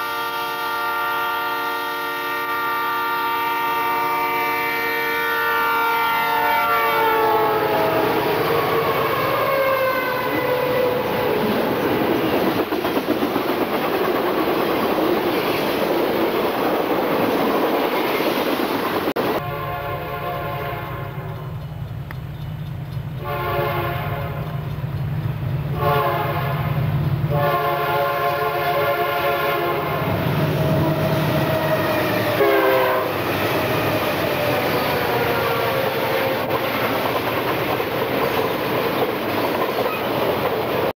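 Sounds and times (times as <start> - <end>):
locomotive air horn blasts: 0.0 - 11.1, 19.2 - 21.5, 23.2 - 24.6, 25.7 - 33.3
train wheels clattering on rails: 10.8 - 19.4, 21.2 - 27.4, 30.6 - 40.9.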